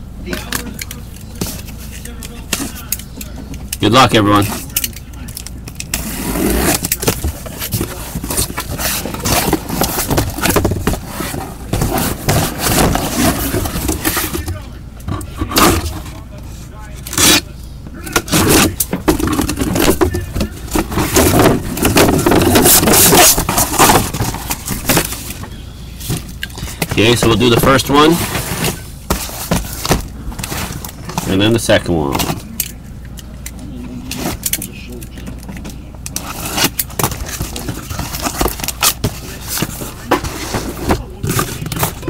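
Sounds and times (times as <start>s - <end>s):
cardboard box scraping and rubbing: 5.9s - 14.6s, 18.2s - 25.4s, 26.9s - 31.5s, 36.2s - 42.0s.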